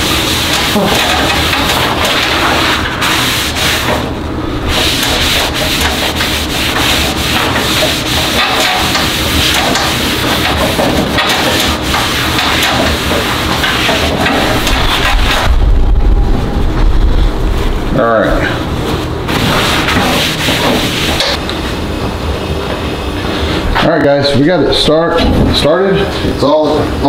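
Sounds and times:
paper towel rubbing on steel: 0:00.0 - 0:04.1, 0:04.7 - 0:15.4, 0:19.3 - 0:21.4.

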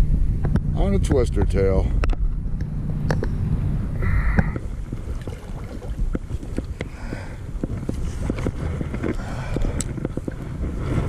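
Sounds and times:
wind rumbling on microphone: 0:00.0 - 0:11.0
water lapping: 0:04.0 - 0:11.0
small ticks and splashes: 0:04.6 - 0:06.9.

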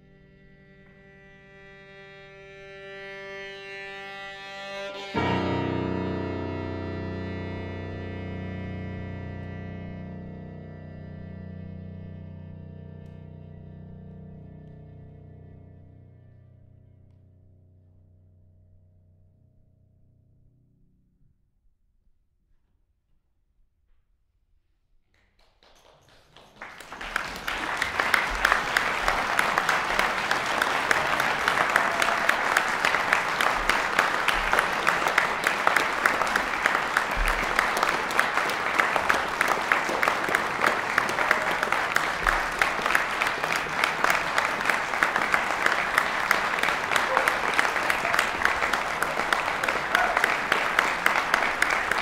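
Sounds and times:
audience applauding: 0:25.4 - 0:52.0.

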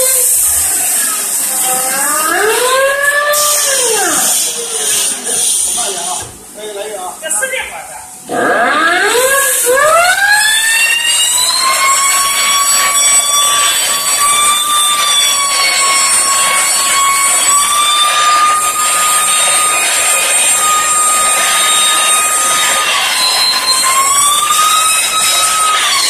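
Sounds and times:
loud hiss of air: 0:00.0 - 0:02.2, 0:03.3 - 0:06.6
rock drill whining: 0:10.8 - 0:26.0.

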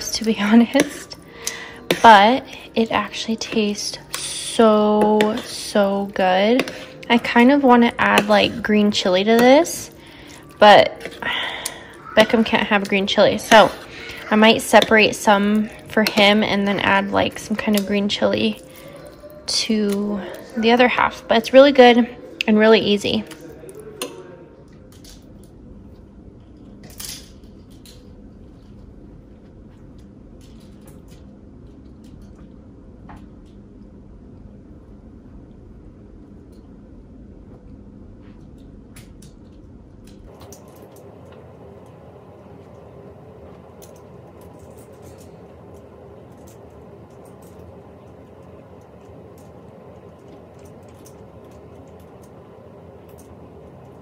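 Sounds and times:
low room hum: 0:00.0 - 0:54.0.

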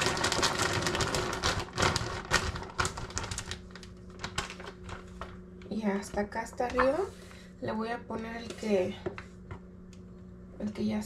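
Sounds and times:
frozen cheese clattering: 0:00.0 - 0:05.4
plastic bag crinkling: 0:00.0 - 0:05.8.

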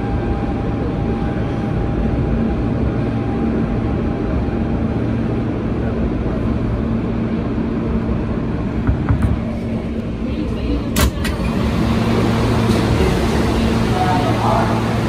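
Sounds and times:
subway train rumbling: 0:00.0 - 0:15.0
sharp clicks and knocks: 0:08.9 - 0:09.5.

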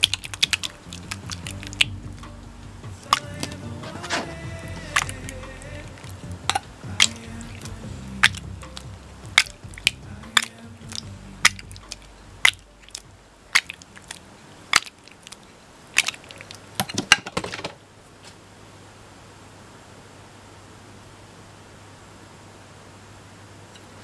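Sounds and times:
slime squelching and popping: 0:00.0 - 0:01.9, 0:06.5 - 0:15.4, 0:16.0 - 0:16.9
soft background music: 0:00.0 - 0:15.6.

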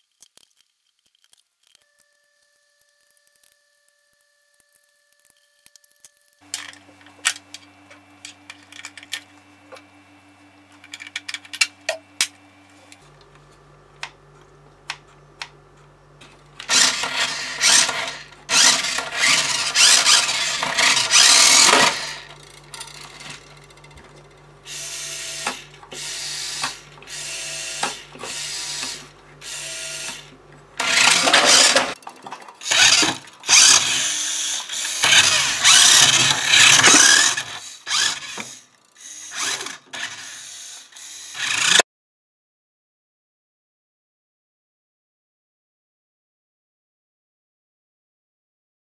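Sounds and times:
toy car motor whirring: 0:00.0 - 0:13.1, 0:16.6 - 0:41.8
screwdriver and plastic clicks: 0:10.7 - 0:13.0.

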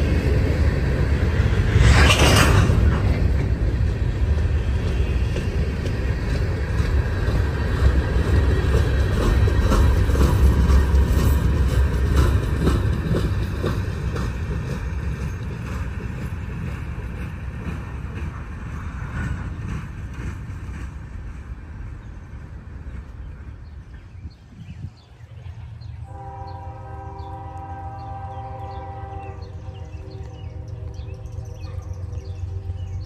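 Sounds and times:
train wheels clicking over rail joints: 0:00.0 - 0:24.7
locomotive horn chord: 0:26.0 - 0:33.0.

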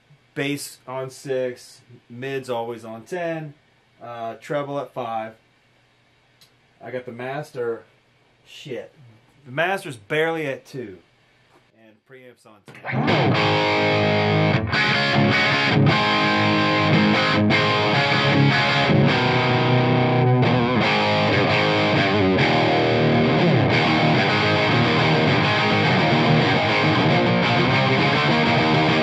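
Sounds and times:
distorted electric guitar riff: 0:12.7 - 0:29.0.

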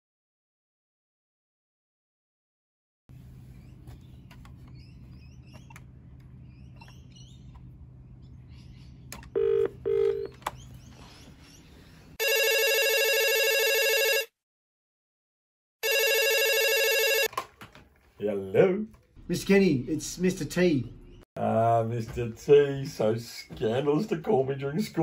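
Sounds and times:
electronic phone ringtone: 0:09.4 - 0:10.3, 0:12.2 - 0:14.4, 0:15.8 - 0:17.3.

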